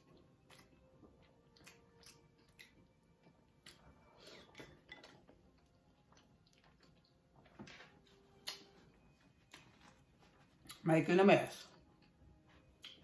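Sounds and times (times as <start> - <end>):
wet chewing and lip smacks: 0.0 - 7.4, 8.4 - 8.8, 12.8 - 13.0.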